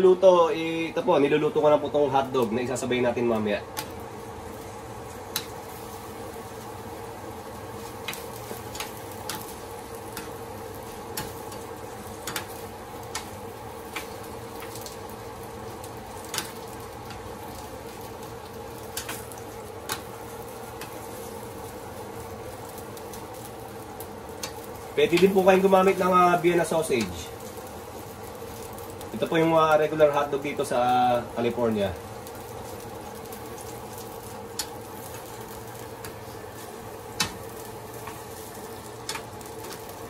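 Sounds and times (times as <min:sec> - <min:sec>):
hotdogs sizzling in skillet: 0:00.0 - 0:40.0.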